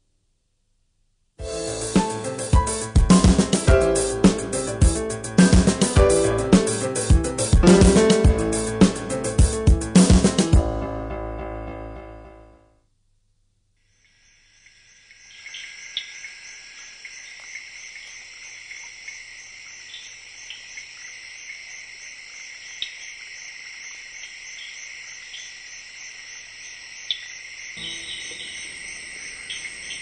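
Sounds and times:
short sharp insect calls: 0:13.8 - 0:30.0
shrill insect chorus: 0:13.9 - 0:30.0.

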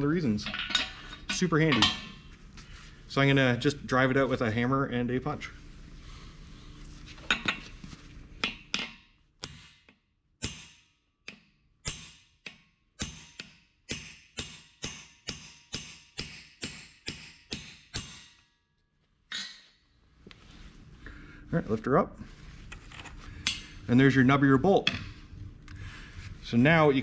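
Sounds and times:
hammer striking steel punch: 0:08.4 - 0:18.5.

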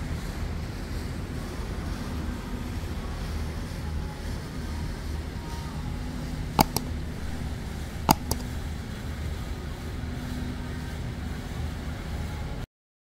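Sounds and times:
sharp clicks: 0:06.6 - 0:08.8.

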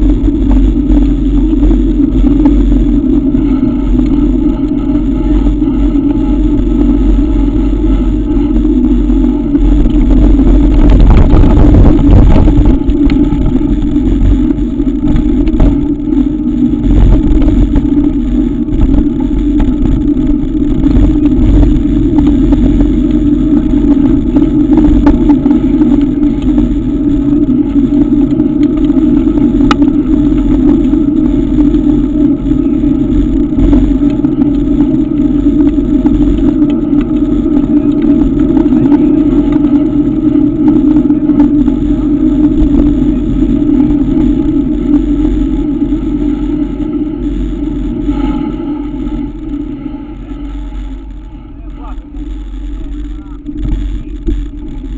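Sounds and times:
wind and road rumble: 0:00.0 - 0:54.9
sharp tick: 0:29.6 - 0:29.8
faint clicks and rattles: 0:52.0 - 0:54.9.

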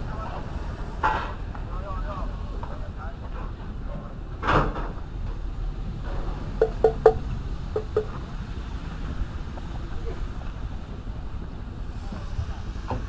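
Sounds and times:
low outdoor rumble: 0:00.0 - 0:13.0
dull knock: 0:06.6 - 0:08.1.

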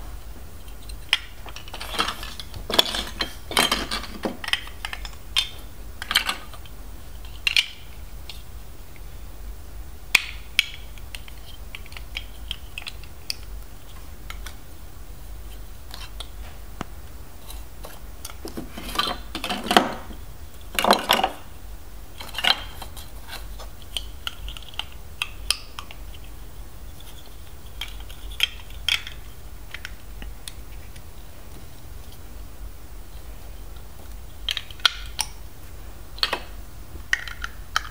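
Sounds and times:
plastic bricks clicking and clattering: 0:01.0 - 0:06.7, 0:37.1 - 0:37.9.

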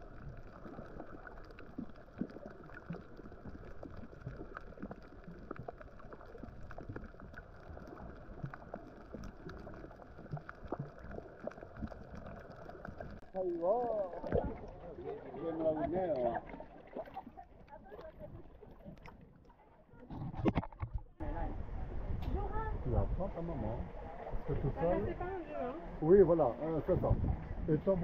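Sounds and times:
water sloshing and splashing: 0:00.0 - 0:21.2
low steady rumble: 0:21.0 - 0:28.0.

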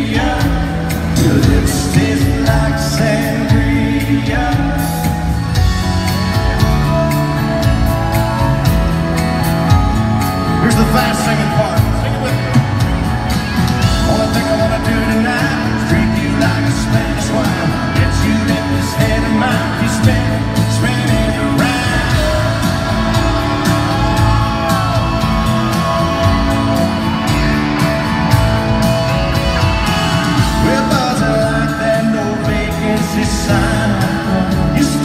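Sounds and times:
male singing: 0:00.0 - 0:05.4, 0:13.9 - 0:27.3, 0:29.9 - 0:35.0
acoustic guitar: 0:00.0 - 0:35.0
country band playing: 0:00.0 - 0:35.0.

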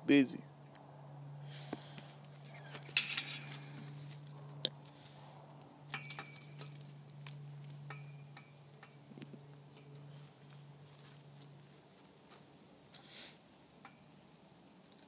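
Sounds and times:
steady low hum: 0:00.0 - 0:15.0
metal chain clinking: 0:02.1 - 0:04.3, 0:05.8 - 0:08.6.

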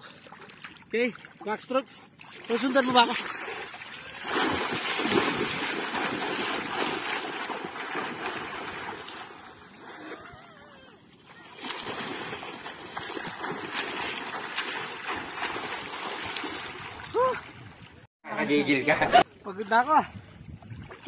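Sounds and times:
swimmer splashing in water: 0:03.2 - 0:10.3.

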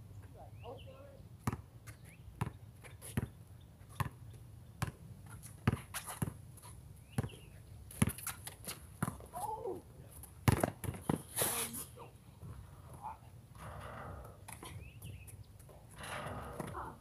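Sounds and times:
basketball bouncing on concrete: 0:01.4 - 0:01.7, 0:02.4 - 0:03.4, 0:04.0 - 0:04.2, 0:04.8 - 0:05.0, 0:05.6 - 0:06.4, 0:09.0 - 0:09.3, 0:10.4 - 0:11.3, 0:16.2 - 0:17.0.

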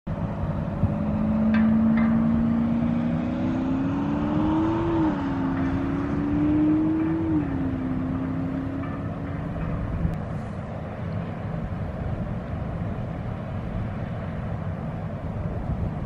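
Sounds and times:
engine accelerating and shifting gears: 0:00.1 - 0:10.4.

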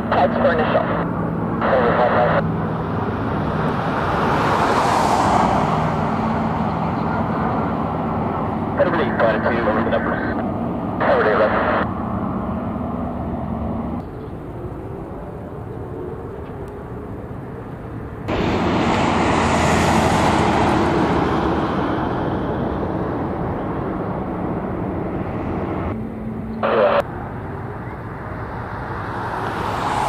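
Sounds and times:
distant jet rumble: 0:00.0 - 0:30.0
loud jet passing with hiss: 0:03.4 - 0:08.2, 0:18.3 - 0:24.2, 0:28.5 - 0:30.0.

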